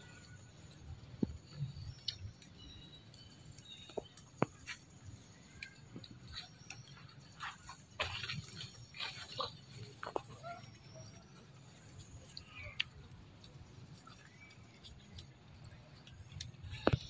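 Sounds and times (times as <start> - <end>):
light clicks and crackles: 0.0 - 17.0
dry leaves rustling: 5.4 - 17.0.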